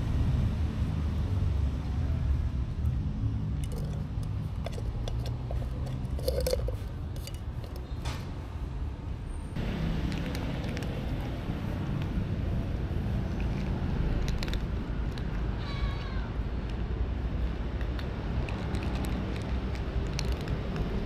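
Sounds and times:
food against plastic dishes: 3.6 - 8.0
cats chewing food: 17.7 - 21.0.

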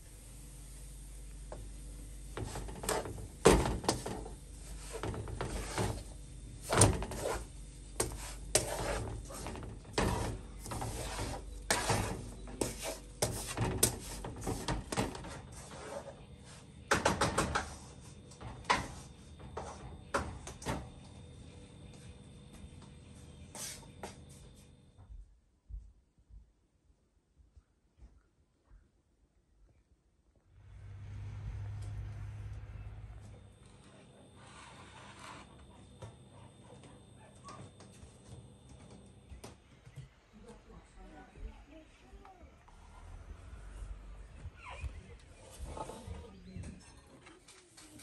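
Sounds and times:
spatula scraping a pan: 4.8 - 6.1, 6.9 - 14.6, 34.4 - 35.6.

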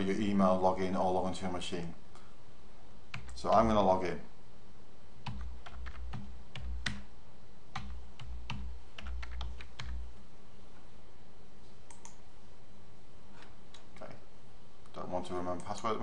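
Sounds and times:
typing on computer keyboard: 5.3 - 7.1, 7.8 - 10.0.

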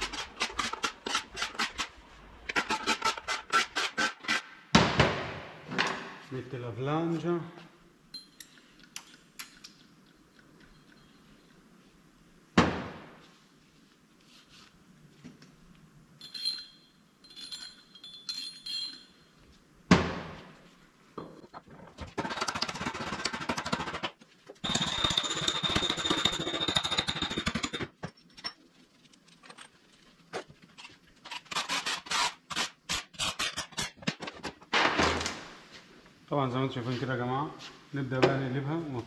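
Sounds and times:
light metal clinks: 8.1 - 11.6, 16.2 - 19.4
metal parts rattling: 16.2 - 19.2.

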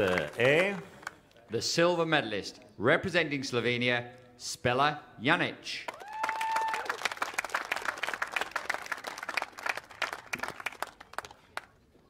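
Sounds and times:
crowd applauding: 0.0 - 1.3, 5.9 - 11.8.

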